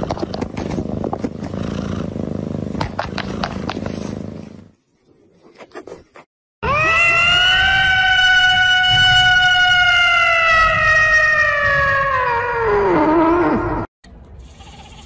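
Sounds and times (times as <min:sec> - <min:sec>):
cat yowling: 0:06.6 - 0:13.8.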